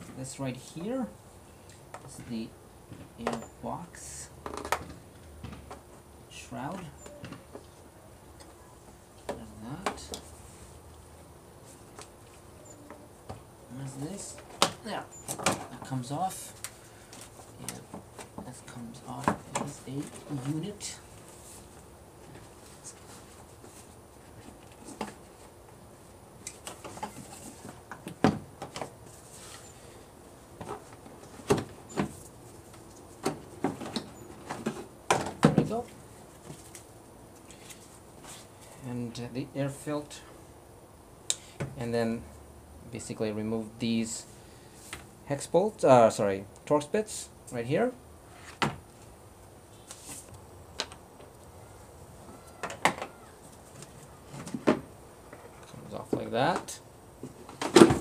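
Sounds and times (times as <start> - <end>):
plastic clunks and knocks: 57.5 - 58.0.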